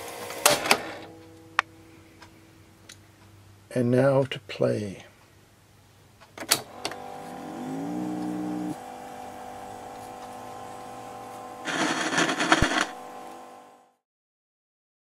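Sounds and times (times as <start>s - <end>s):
tape transport motor hum: 6.4s - 13.8s
whir rising in pitch: 7.0s - 8.9s.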